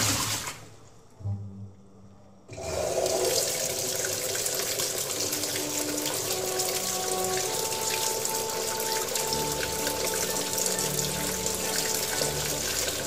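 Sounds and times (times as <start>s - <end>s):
water gushing into washing machine: 0.0s - 1.0s, 2.5s - 13.0s.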